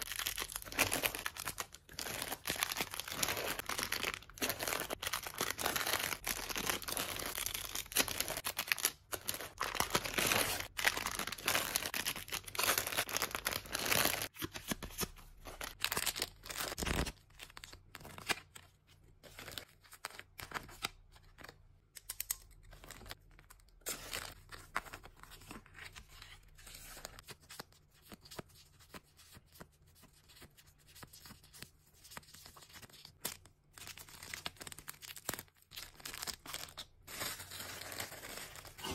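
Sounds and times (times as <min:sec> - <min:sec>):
plastic wrap crinkling: 0:00.0 - 0:14.4.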